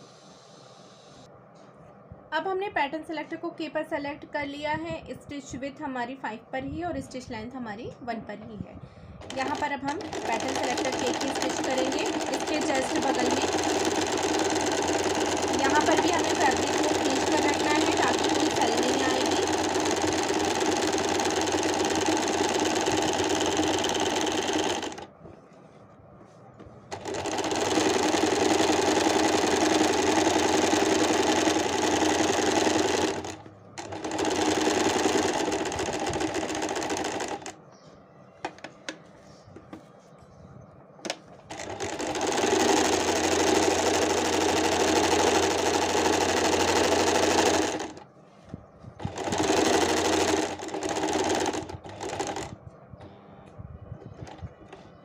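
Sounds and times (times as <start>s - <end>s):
sewing machine stitching: 9.2s - 25.1s, 26.9s - 37.6s, 41.5s - 48.0s, 49.0s - 52.5s.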